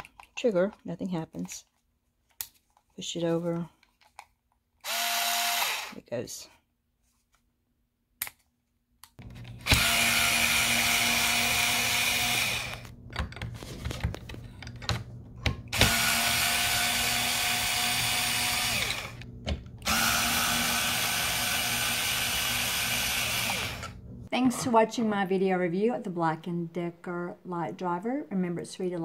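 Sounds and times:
soft clicks and handling noise: 0.0s - 4.7s
cordless screwdriver whine: 4.8s - 6.0s, 9.2s - 12.9s, 15.7s - 24.0s.

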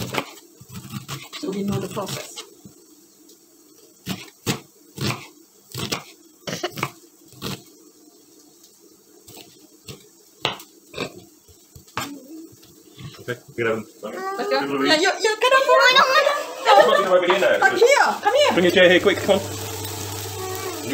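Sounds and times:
knife chopping on wooden board: 0.0s - 2.3s, 4.1s - 6.1s, 6.7s - 7.5s.

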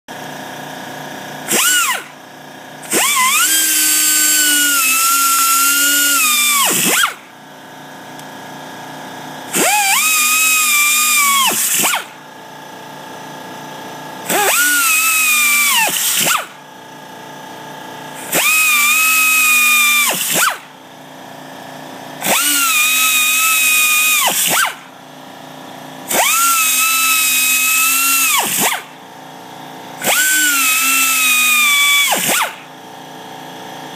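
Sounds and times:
air grinder drilling rubber: 1.4s - 2.2s, 2.8s - 7.3s, 9.4s - 12.2s, 14.2s - 16.6s, 18.2s - 20.8s, 22.2s - 24.9s, 26.0s - 29.0s, 30.0s - 32.8s.

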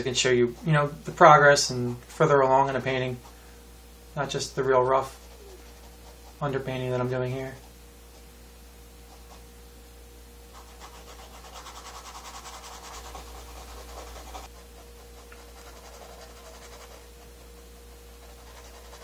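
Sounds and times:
paintbrush scrubbing on canvas: 0.0s - 1.8s, 4.3s - 8.3s, 9.0s - 9.5s, 10.5s - 19.0s.

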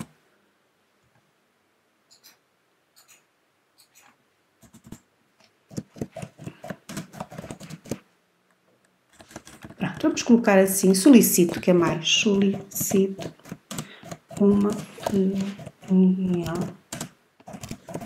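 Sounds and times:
typing on computer keyboard: 3.8s - 5.0s, 5.7s - 8.0s, 9.2s - 10.2s, 10.8s - 18.0s.

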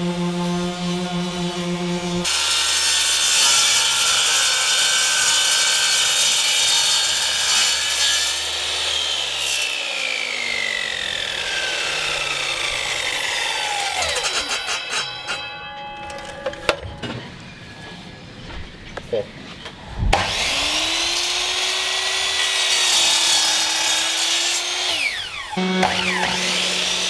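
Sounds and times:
saw blade spinning down whine: 0.0s - 2.5s, 9.2s - 15.4s, 20.0s - 27.0s
mitre saw cutting metal: 0.0s - 15.5s, 20.1s - 27.0s.

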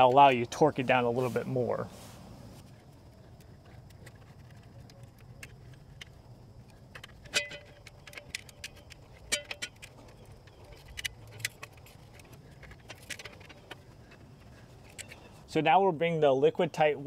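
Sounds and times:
screwdriver clicking on metal lugs: 6.9s - 14.2s.

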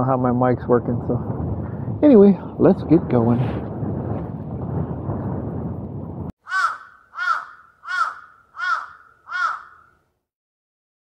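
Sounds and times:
wind buffeting microphone: 0.0s - 9.6s
bird calling: 6.4s - 10.0s.

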